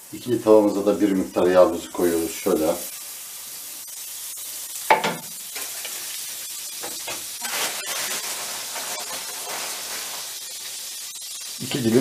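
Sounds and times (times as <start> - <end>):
fat sizzling in frying pans: 0.0 - 12.0
utensil knocking: 4.9 - 5.3.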